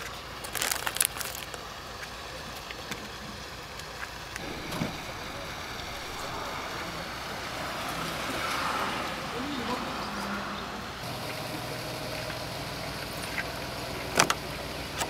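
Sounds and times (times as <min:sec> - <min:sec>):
harbour water: 0:00.0 - 0:15.0
wind: 0:00.0 - 0:15.0
plastic bag crinkling: 0:00.4 - 0:01.6.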